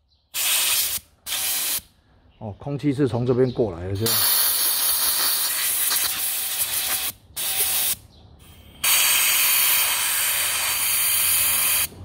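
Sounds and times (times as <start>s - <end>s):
compressed air blow gun hissing: 0.3s - 1.9s, 4.0s - 12.0s.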